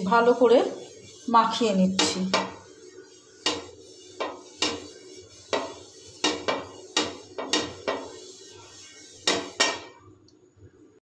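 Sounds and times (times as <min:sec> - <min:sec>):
metal pan knocking on burner: 0:01.9 - 0:02.6, 0:03.4 - 0:08.2, 0:09.2 - 0:10.0.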